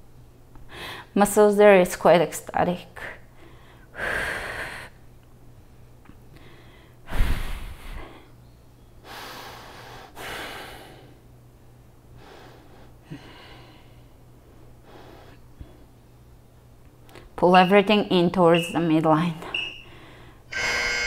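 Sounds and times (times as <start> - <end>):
woman breathing hard: 0.7 - 1.1, 3.4 - 5.0, 6.4 - 8.3, 9.0 - 11.2, 12.2 - 14.2, 19.8 - 20.5.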